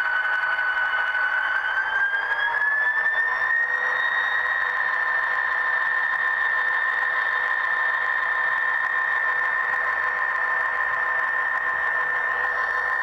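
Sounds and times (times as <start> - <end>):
model locomotive engine whine: 0.0 - 13.0.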